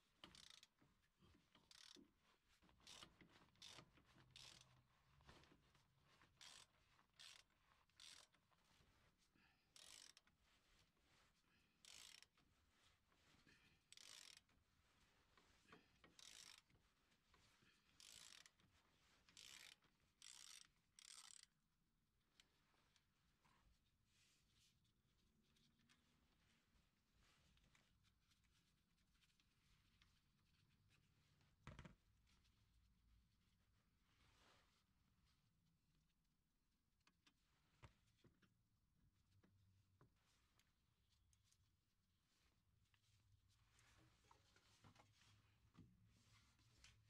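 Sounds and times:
socket ratchet clicking: 19.4s - 21.5s.

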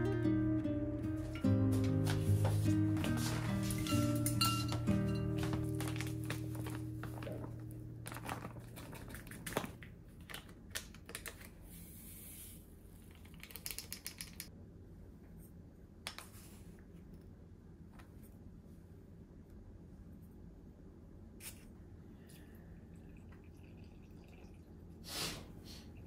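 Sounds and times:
paper bag rustling and crinkling: 1.7s - 10.6s
packet crinkling: 2.1s - 11.6s.

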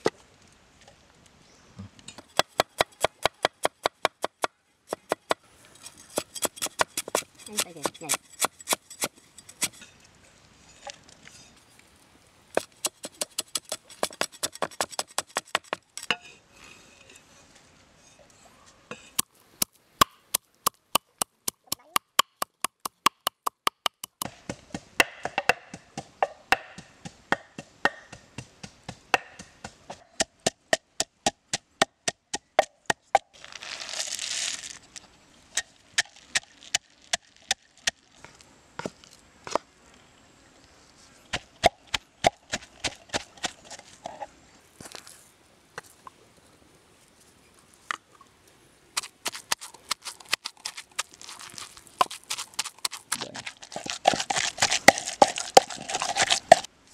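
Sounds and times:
wooden pestle pounding in mortar: 21.2s - 32.7s.

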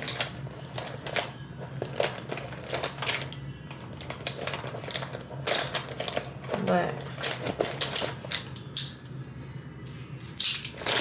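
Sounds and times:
makeup containers clicking and clattering: 0.0s - 3.4s, 4.0s - 8.9s
steady low hum: 0.0s - 11.0s.

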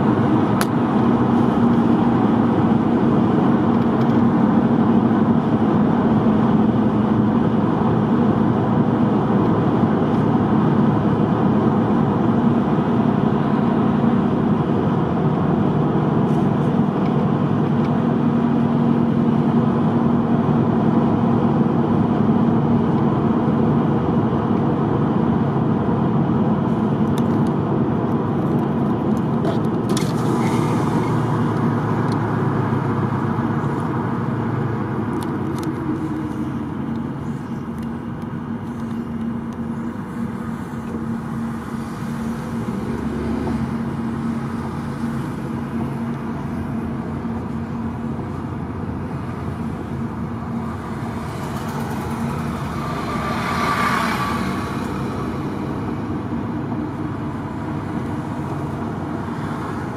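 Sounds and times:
car driving on highway: 0.0s - 59.9s.

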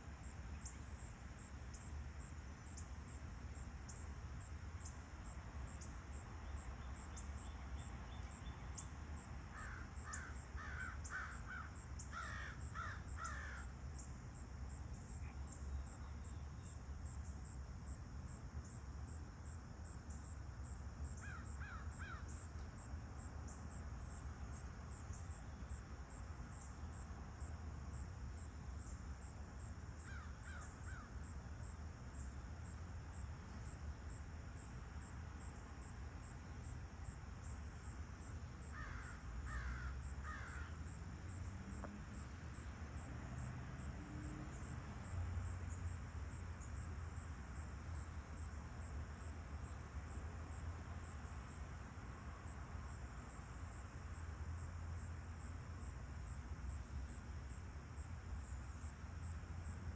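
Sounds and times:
crickets trilling: 0.0s - 59.9s
crow cawing: 9.6s - 13.7s, 21.2s - 22.3s, 38.8s - 40.7s.

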